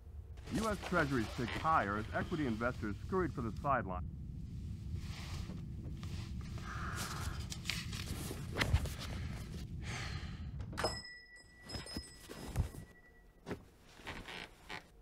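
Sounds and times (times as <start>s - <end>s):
soft rustles and clicks: 4.5s - 9.7s
high bell-like ringing tone: 10.8s - 13.4s.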